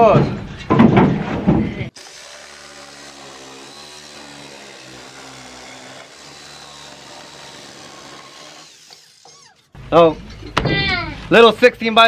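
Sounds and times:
power saw cutting wood: 1.9 - 9.8.

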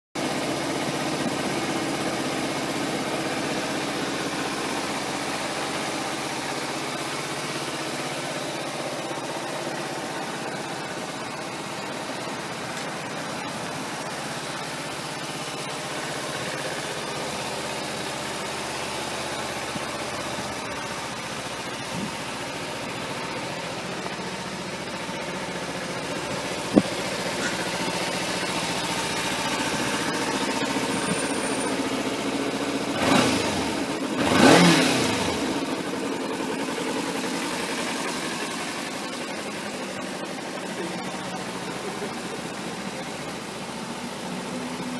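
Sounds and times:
motorcycle engine idling: 0.2 - 44.9
engine revving: 25.2 - 36.2.

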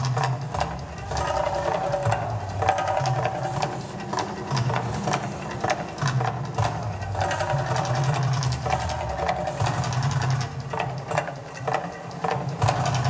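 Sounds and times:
crowd chatter: 0.0 - 13.0.

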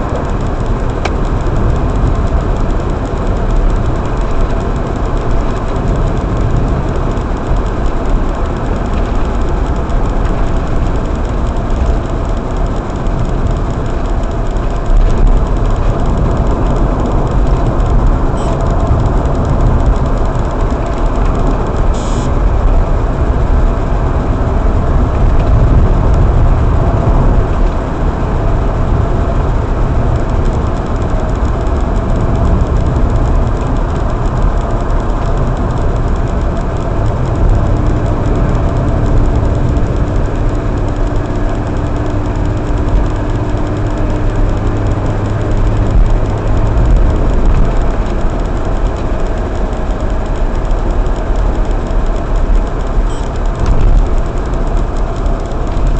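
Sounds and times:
car engine and tyre rumble: 0.0 - 55.9.

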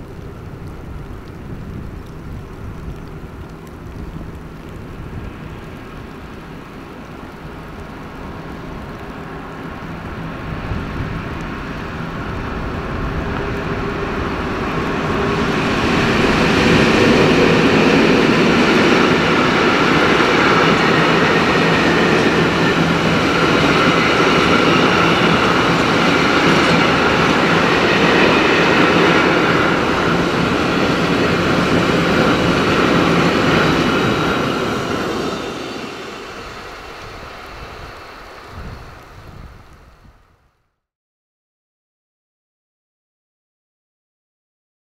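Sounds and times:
train wheels rumbling: 0.0 - 40.4
locomotive engine drone: 0.0 - 40.5.

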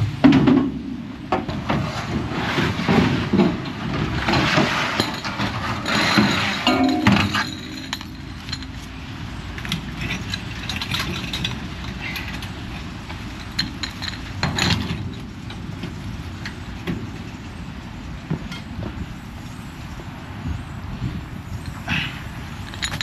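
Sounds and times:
metallic clinks and knocks: 5.0 - 15.6, 22.6 - 23.0.

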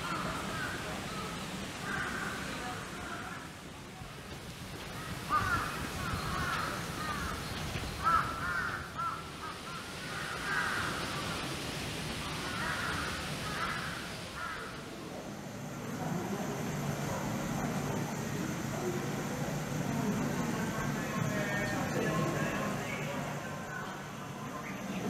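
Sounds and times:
birds calling: 0.0 - 3.6, 4.8 - 11.6, 12.2 - 15.0.

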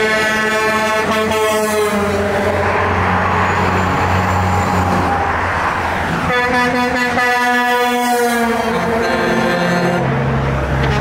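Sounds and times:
vehicle horn blowing: 0.0 - 2.5, 6.2 - 10.1
highway traffic rushing past: 0.0 - 11.0.

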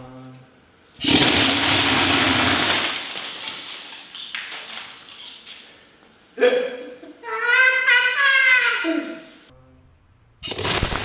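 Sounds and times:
glasses shattering: 2.4 - 5.8.

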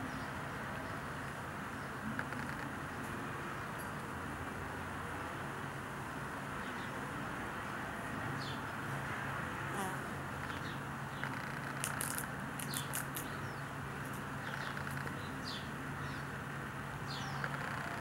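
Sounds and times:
small birds chirping: 9.8 - 16.4, 17.0 - 18.0
sharp clicks: 11.2 - 13.3.

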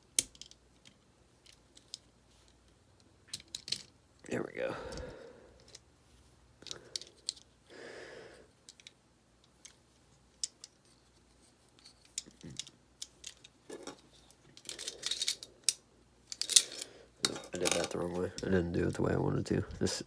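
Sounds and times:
metallic clicks of pistol parts: 0.1 - 2.1, 6.6 - 7.5, 8.6 - 10.9, 11.8 - 13.5, 14.5 - 18.5.

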